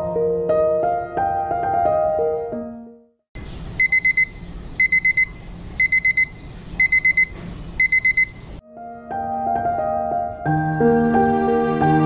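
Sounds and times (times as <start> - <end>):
alarm clock beeping: 3.4 - 8.6.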